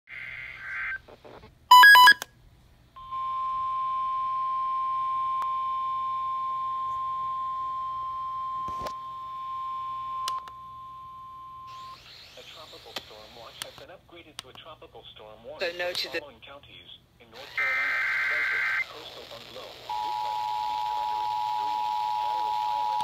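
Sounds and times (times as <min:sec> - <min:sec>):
sharp electronic beeps: 0:01.7 - 0:02.2
clicks: 0:10.2 - 0:10.6
warbling data burst: 0:17.4 - 0:19.3.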